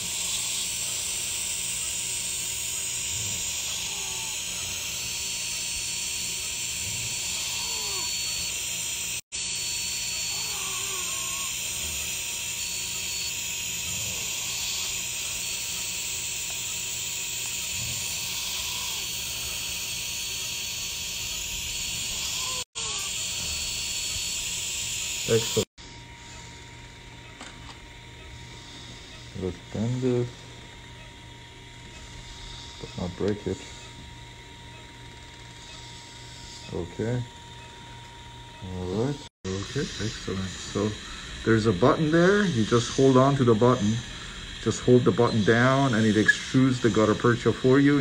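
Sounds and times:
dental suction hissing: 0:00.0 - 0:26.6, 0:31.9 - 0:33.4, 0:39.0 - 0:48.0.

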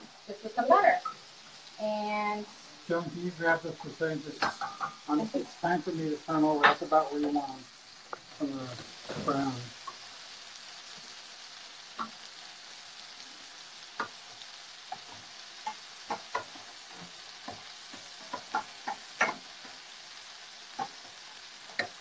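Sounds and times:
seafood sizzling in a pan: 0:00.0 - 0:22.0
clicks and taps of turning food: 0:11.9 - 0:12.3, 0:13.9 - 0:14.3, 0:14.9 - 0:19.9, 0:20.7 - 0:22.0.

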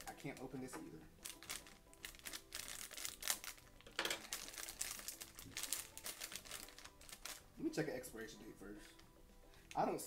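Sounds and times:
plastic pouch crinkling: 0:01.2 - 0:07.5.

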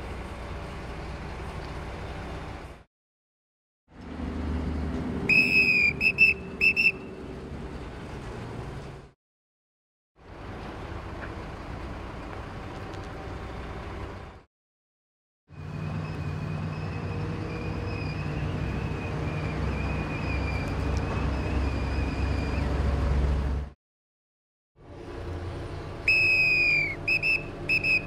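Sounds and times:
crane engine running: 0:00.0 - 0:02.8, 0:10.3 - 0:14.4, 0:24.8 - 0:28.0.

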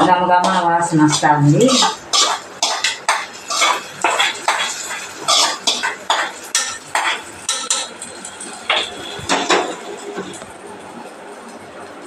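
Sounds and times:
spoon scraping metal pan: 0:00.4 - 0:08.0.

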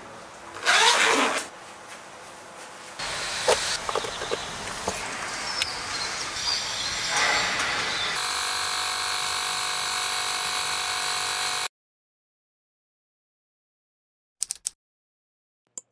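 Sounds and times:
electric air compressor humming: 0:03.0 - 0:11.7.

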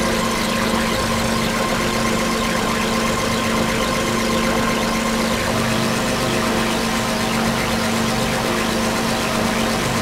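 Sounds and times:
buzzing digital drone: 0:00.0 - 0:10.0.

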